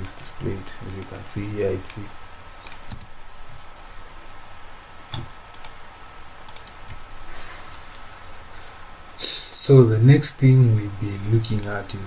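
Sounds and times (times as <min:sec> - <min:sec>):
keyboard and mouse clicks: 0:02.6 - 0:03.1, 0:05.1 - 0:05.8, 0:06.5 - 0:07.0.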